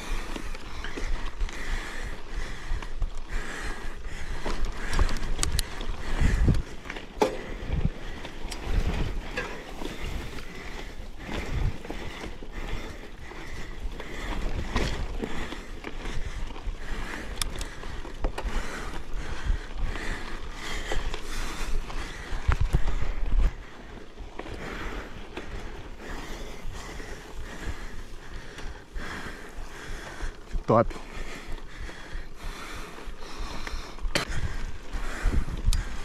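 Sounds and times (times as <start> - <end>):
bike tyre and frame noise: 0.0 - 36.0
wind rumble on microphone: 0.0 - 36.0
sharp clicks: 4.9 - 5.8.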